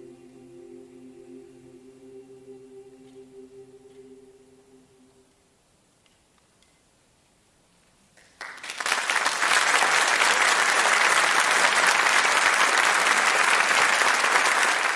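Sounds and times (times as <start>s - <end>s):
audience applause: 8.2s - 14.9s.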